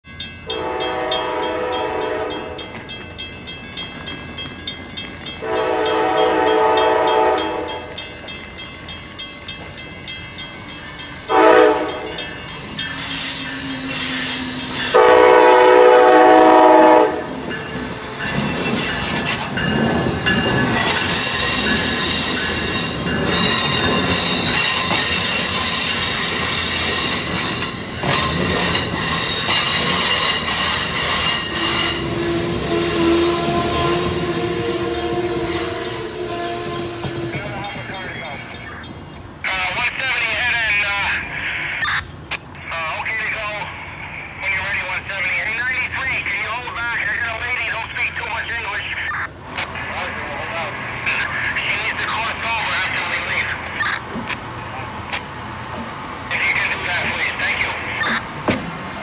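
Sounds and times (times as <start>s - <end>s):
train rolling rumble: 0.1s - 59.0s
train horn: 0.5s - 2.6s, 5.4s - 7.9s, 11.3s - 12.2s, 14.8s - 17.3s, 29.6s - 37.5s
wheel squeal: 12.6s - 15.0s, 17.0s - 19.5s, 20.2s - 37.5s.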